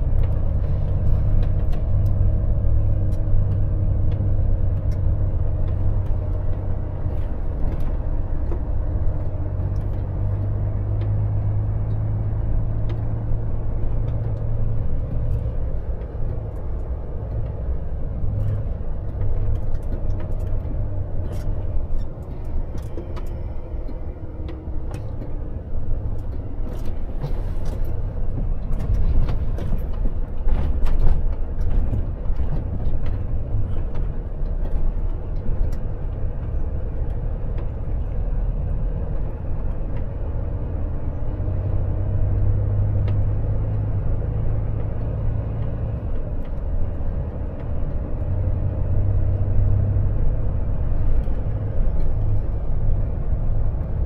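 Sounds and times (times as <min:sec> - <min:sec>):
diesel truck engine rumbling: 0:00.0 - 0:54.0
clicks and light knocks: 0:11.8 - 0:38.4.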